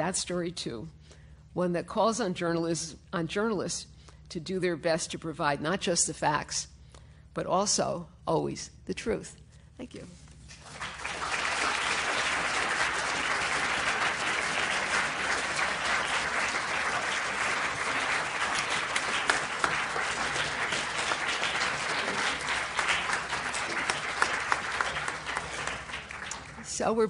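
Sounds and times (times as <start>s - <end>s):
audience applauding: 10.6s - 26.7s.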